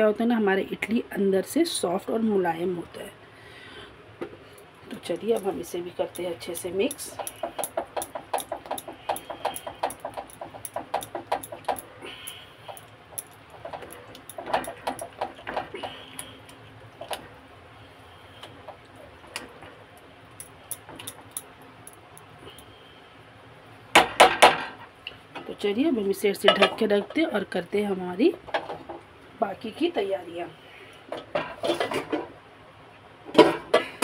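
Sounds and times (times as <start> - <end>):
utensil clattering: 4.9 - 16.0.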